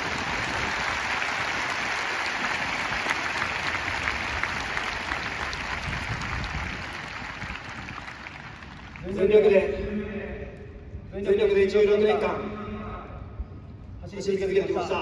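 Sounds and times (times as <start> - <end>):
stadium crowd clapping: 0.0 - 9.4.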